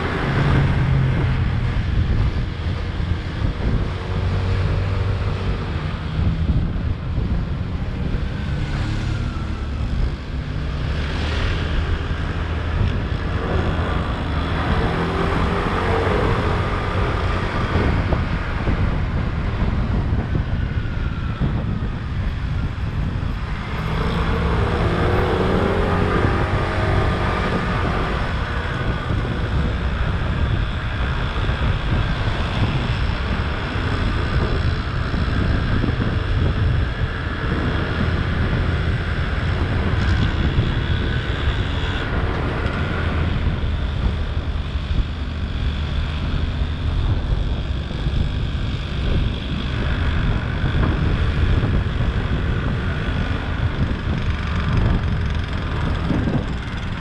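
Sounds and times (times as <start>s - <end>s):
road and wind noise: 0.0s - 57.0s
scooter engine running: 46.5s - 57.0s.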